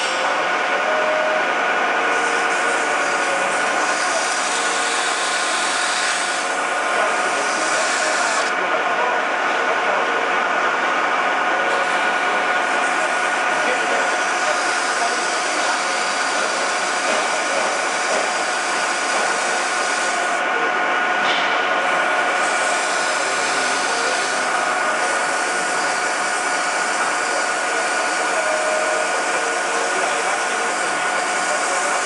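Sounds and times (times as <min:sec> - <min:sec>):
high machine whine: 0:00.0 - 0:32.0
metal lathe whirring: 0:00.0 - 0:32.0.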